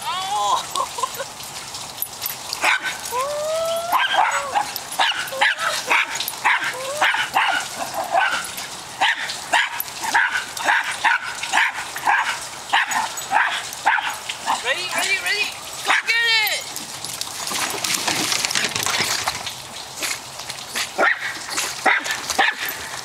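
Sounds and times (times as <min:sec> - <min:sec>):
small dogs barking and yipping: 0:02.6 - 0:16.2, 0:20.8 - 0:22.9
dog whining: 0:02.8 - 0:07.7.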